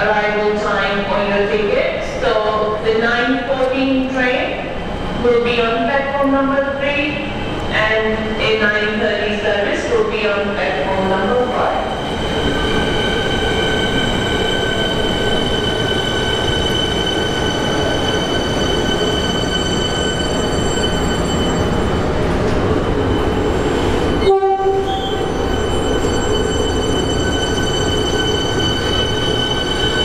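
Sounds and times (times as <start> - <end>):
electric train whine: 10.2 - 30.0.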